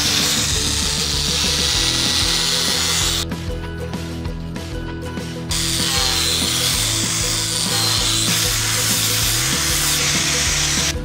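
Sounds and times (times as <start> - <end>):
angle grinder grinding steel: 0.0 - 3.3, 5.5 - 11.0
background music: 0.0 - 11.0.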